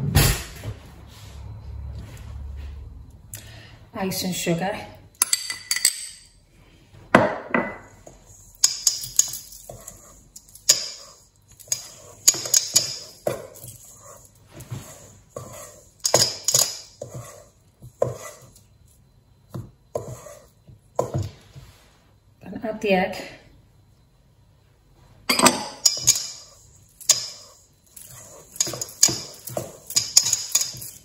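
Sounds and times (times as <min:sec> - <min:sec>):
metal spoon scraping steel bowl: 0:25.8 - 0:31.0.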